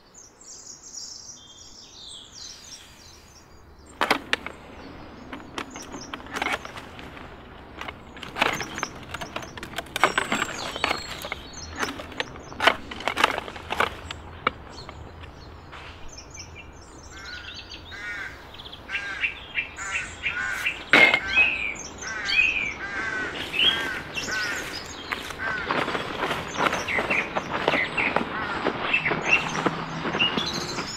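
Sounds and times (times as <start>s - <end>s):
birds chirping harshly: 0.0s - 30.9s
garden loppers cutting branches: 3.9s - 16.1s, 19.8s - 30.9s.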